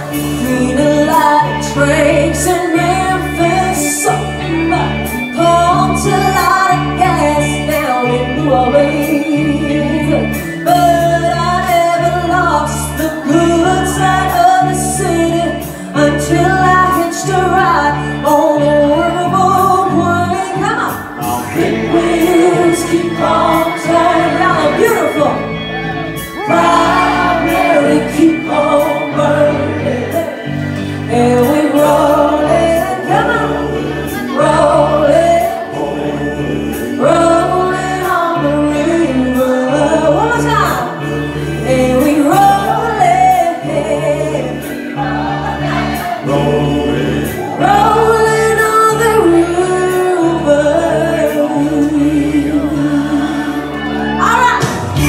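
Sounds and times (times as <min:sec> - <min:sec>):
person singing lead vocal: 0:00.0 - 0:55.0
backing music with bass beat: 0:20.7 - 0:51.5.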